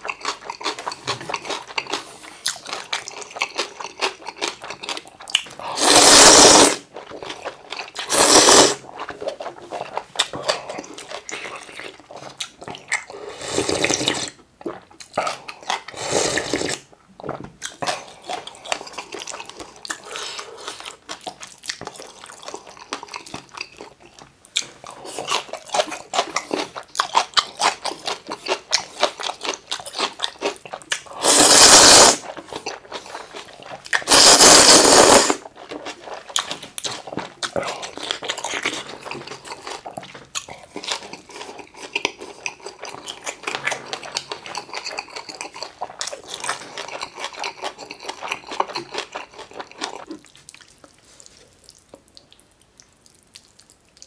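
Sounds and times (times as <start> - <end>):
chewing and crunching food: 0.0 - 54.0
slurping noodles: 5.6 - 12.2, 13.0 - 14.4, 15.2 - 16.9, 31.0 - 36.4.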